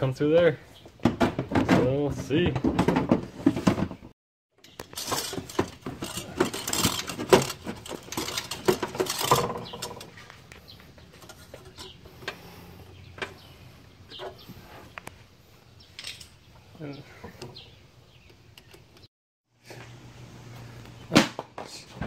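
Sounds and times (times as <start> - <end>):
pipe rustling and scraping: 1.4 - 16.4.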